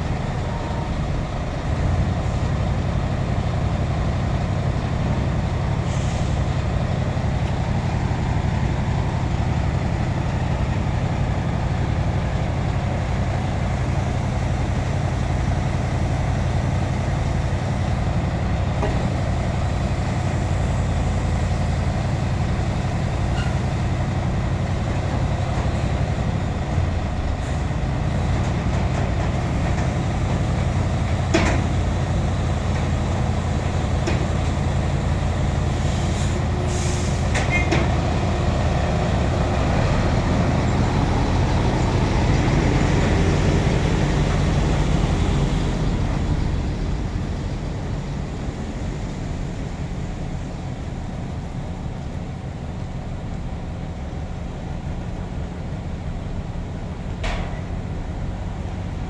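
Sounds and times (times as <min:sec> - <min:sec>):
heavy diesel engines running: 0:00.0 - 0:59.0
air brake hiss: 0:05.8 - 0:06.5, 0:35.8 - 0:37.3.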